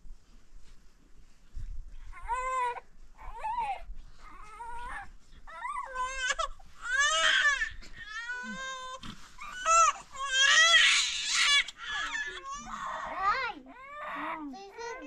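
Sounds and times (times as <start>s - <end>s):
baby crying: 5.6s - 15.0s.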